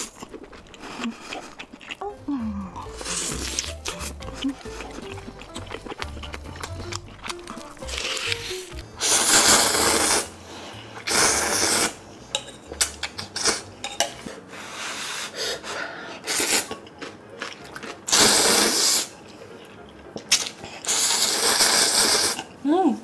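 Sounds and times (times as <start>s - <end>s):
wet chewing: 0.0s - 9.0s, 16.4s - 22.5s
loud noodle slurps: 7.8s - 10.3s, 11.0s - 12.0s, 16.2s - 16.7s, 18.1s - 19.2s, 20.3s - 22.5s.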